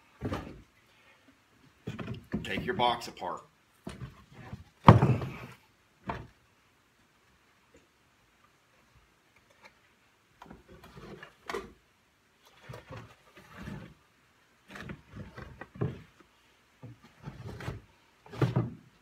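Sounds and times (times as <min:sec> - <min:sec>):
wood scraping: 0:01.7 - 0:03.0, 0:03.8 - 0:06.3, 0:10.4 - 0:11.8, 0:12.4 - 0:14.0, 0:14.6 - 0:18.9.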